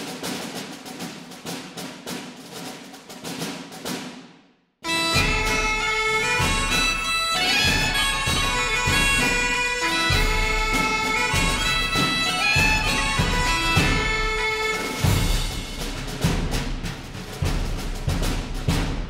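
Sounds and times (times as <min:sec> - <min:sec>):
reedy melody: 0:04.8 - 0:15.8
low drum beat: 0:05.1 - 0:19.0.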